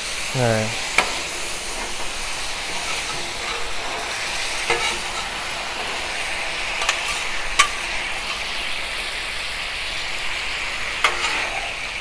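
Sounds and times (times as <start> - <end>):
food sizzling on griddle: 0.0 - 12.0.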